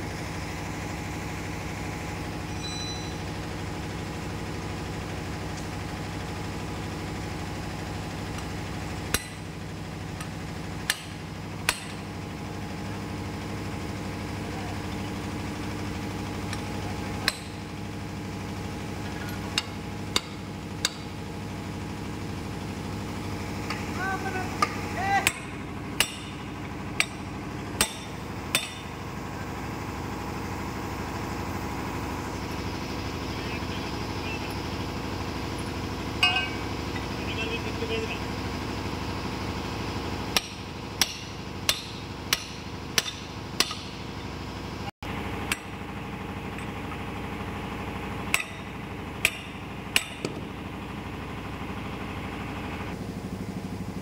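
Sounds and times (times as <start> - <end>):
engine drone: 0.0 - 54.0
hammer striking metal bar: 9.1 - 9.4, 10.9 - 12.0, 17.2 - 17.6, 19.6 - 21.1, 24.6 - 26.4, 27.0 - 27.2, 27.8 - 28.9, 36.2 - 36.7, 40.4 - 44.0, 48.3 - 50.4.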